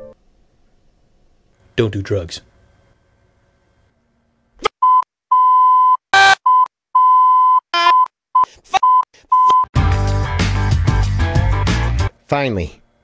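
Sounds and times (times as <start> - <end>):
man speaking: 1.8 - 2.5, 12.3 - 12.8
censor bleeps: 4.8 - 9.7
loud music with heavy bass: 9.8 - 12.1.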